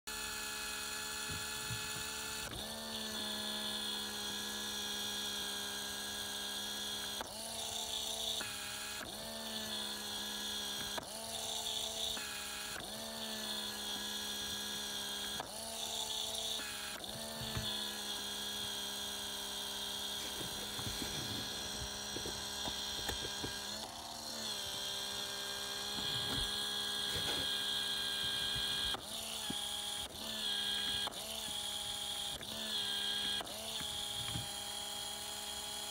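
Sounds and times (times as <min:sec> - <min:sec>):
small electric motor whining: 0:00.1 - 0:35.9.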